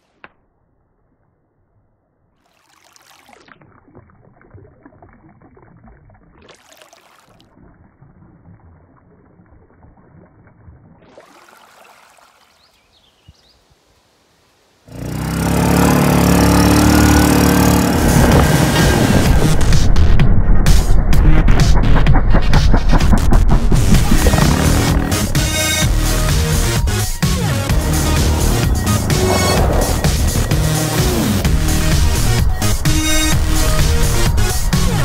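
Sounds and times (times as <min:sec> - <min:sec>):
stream trickling over rocks: 0:02.3 - 0:13.3
whooshing sweeps: 0:17.9 - 0:35.0
loud electronic music: 0:18.4 - 0:35.0.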